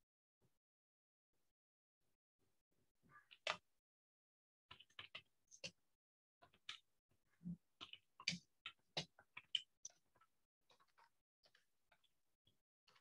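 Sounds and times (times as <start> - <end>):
faint irregular clicks and taps: 3.3 - 3.7, 4.7 - 5.8, 6.4 - 13.0.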